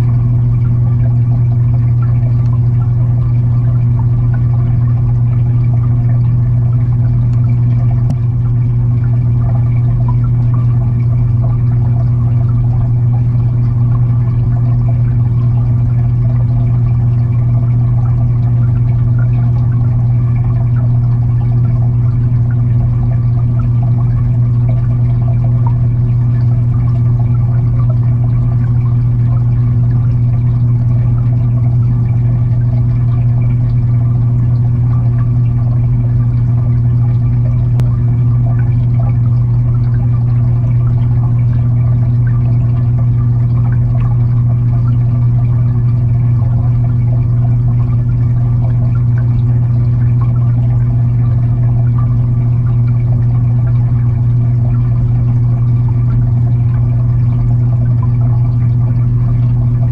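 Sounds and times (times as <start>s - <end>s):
underwater filter hum and water rush: 0.0s - 59.9s.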